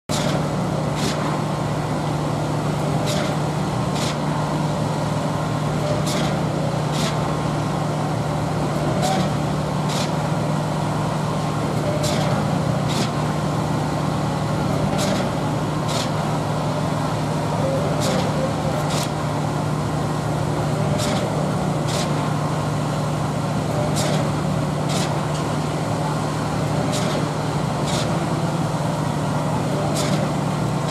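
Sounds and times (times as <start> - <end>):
sharp clacks from concrete pump: 0.1 - 1.4, 2.8 - 4.3, 5.8 - 7.4, 8.8 - 10.2, 11.7 - 13.3, 14.8 - 16.3, 17.7 - 19.2, 20.8 - 22.3, 23.7 - 25.5, 26.7 - 28.4, 29.7 - 30.9
pump engine drone: 0.1 - 30.9.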